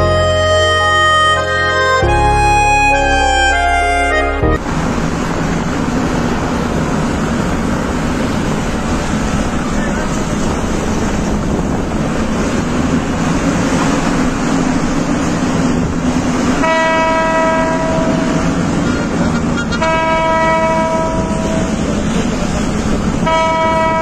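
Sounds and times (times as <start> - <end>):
road and engine noise inside car: 4.6 - 24.0
vehicle horn blast: 16.6 - 21.7, 23.2 - 24.0.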